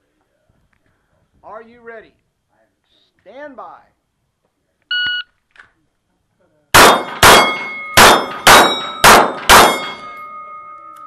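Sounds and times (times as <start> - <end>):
shot timer beep: 4.9 - 5.3
pistol shots: 6.8 - 10.2
steel plates ringing: 7.0 - 11.0.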